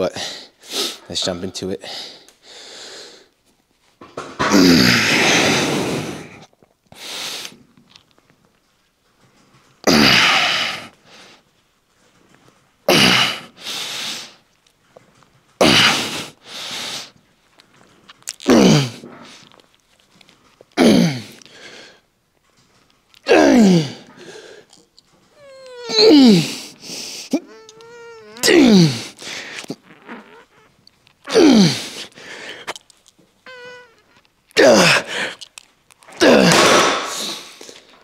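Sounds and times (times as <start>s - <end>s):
man grunting with effort: 23.3s - 24.1s, 25.8s - 26.7s, 28.3s - 29.4s, 31.3s - 32.0s, 34.6s - 35.2s, 36.2s - 36.7s
quick breath: 28.3s - 29.7s, 31.6s - 32.8s.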